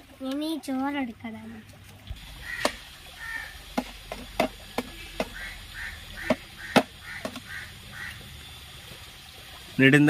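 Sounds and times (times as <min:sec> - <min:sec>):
plastic bottle knocking on stones: 0:03.7 - 0:05.4, 0:06.2 - 0:07.5.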